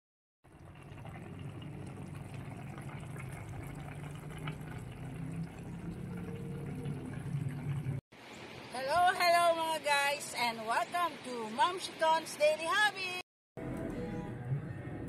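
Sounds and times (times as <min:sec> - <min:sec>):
broth bubbling in a pan: 0:00.4 - 0:08.0.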